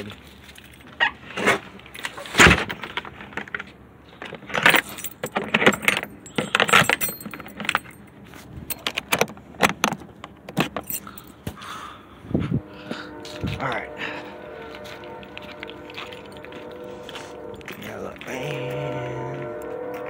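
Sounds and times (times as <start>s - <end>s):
metal latch clicking and rattling: 4.2s - 8.1s, 8.7s - 11.0s.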